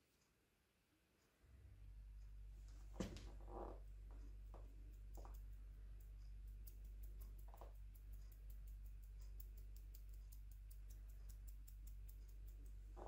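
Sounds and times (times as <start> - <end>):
low steady hum: 0.0 - 13.0
rapid faint clicking: 2.2 - 13.0.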